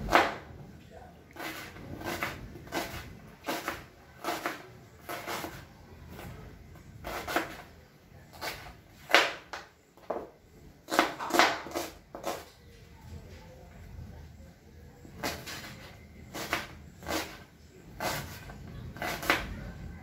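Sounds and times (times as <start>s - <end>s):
knife cutting onion on board: 0.0s - 0.4s, 1.3s - 6.3s, 7.0s - 7.7s, 8.3s - 10.3s, 10.9s - 12.5s, 15.2s - 19.5s.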